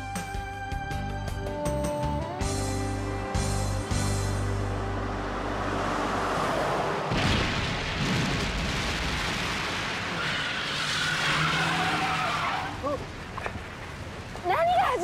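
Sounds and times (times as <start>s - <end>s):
explosion blast: 7.1s - 10.2s.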